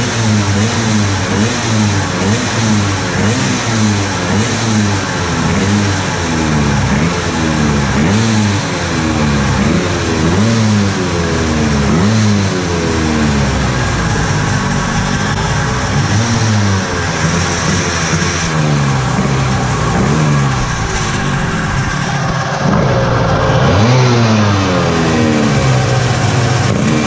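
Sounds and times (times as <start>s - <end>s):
scooter engine revving: 0.0s - 27.0s.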